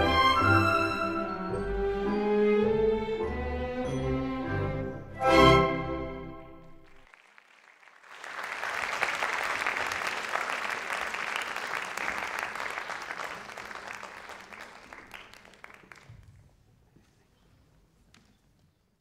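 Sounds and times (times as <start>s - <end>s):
audience applauding: 6.8s - 16.6s.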